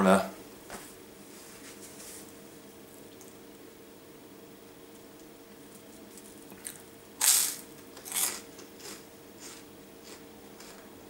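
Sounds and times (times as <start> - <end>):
faint steady hum: 0.0 - 11.0
person crunching toast: 5.6 - 10.8.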